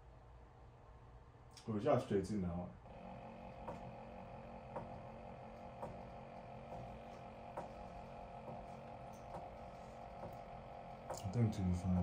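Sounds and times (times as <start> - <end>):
stepper motors whining: 2.9 - 12.0.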